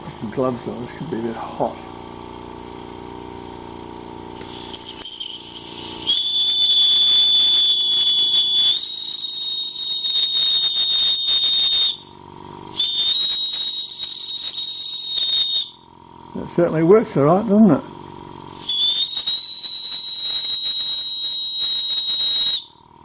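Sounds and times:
steam hissing: 0:04.4 - 0:12.1, 0:12.7 - 0:15.7, 0:18.5 - 0:22.6
steam whistle: 0:04.9 - 0:15.8, 0:18.6 - 0:22.8.

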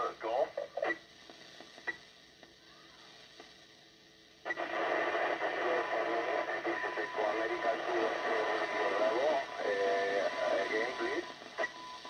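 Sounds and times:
voice radio audio: 0:00.0 - 0:01.0, 0:04.5 - 0:11.7
radio static hiss: 0:00.0 - 0:12.0.

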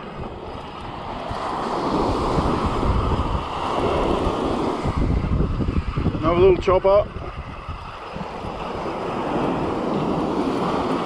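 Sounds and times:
surf washing onto beach: 0:00.0 - 0:11.0
wind buffeting microphone: 0:00.0 - 0:11.0.

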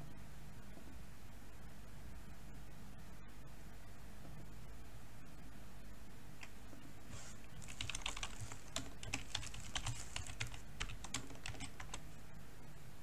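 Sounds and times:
keyboard typing: 0:07.6 - 0:12.1.

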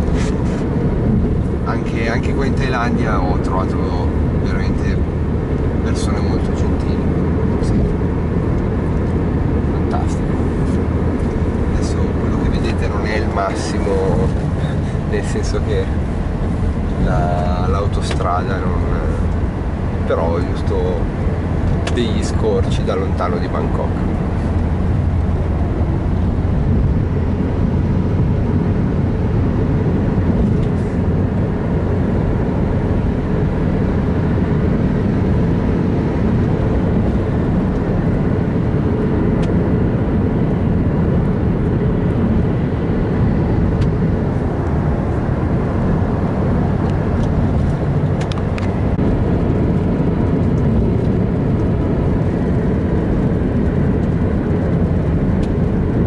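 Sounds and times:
road and engine rumble: 0:00.0 - 0:56.0.

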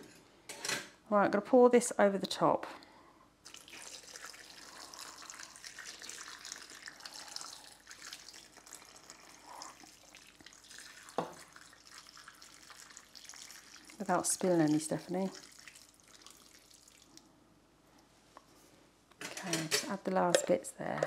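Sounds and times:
liquid pouring onto vegetables: 0:03.5 - 0:17.2.

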